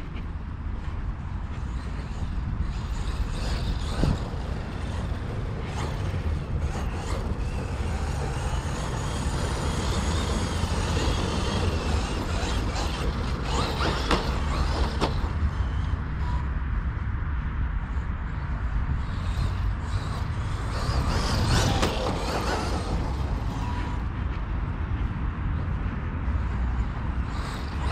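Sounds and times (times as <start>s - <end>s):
wind rumble on microphone: 0.0s - 27.9s
electric motor whine: 2.6s - 16.5s, 19.5s - 24.1s.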